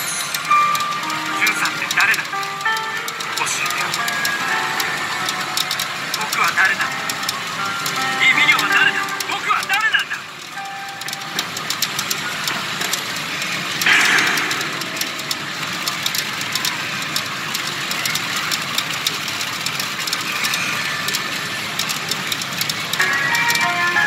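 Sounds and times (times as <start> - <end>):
roar of machines: 13.1 - 17.4.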